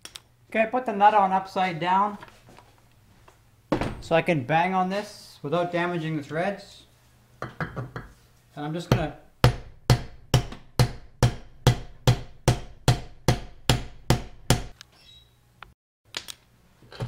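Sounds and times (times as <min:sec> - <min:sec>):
hammer striking metal: 0:08.9 - 0:14.8.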